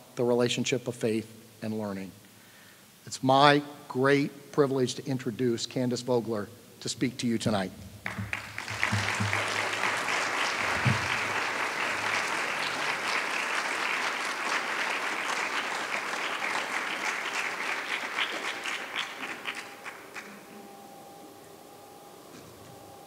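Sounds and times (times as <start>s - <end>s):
audience applauding: 8.0s - 20.8s.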